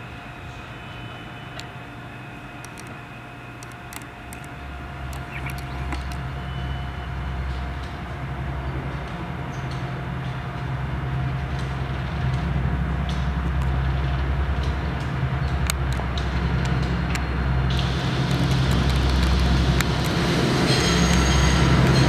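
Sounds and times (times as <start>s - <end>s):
steel wheels squeaking on rail: 0.0s - 8.0s, 17.3s - 22.0s
diesel locomotive engine rumble: 0.0s - 22.0s.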